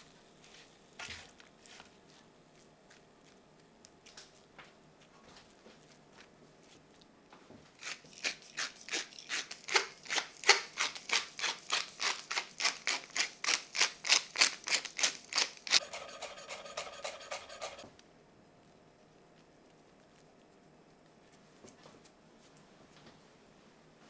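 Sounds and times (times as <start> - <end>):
pepper mill grinding: 7.8 - 17.8.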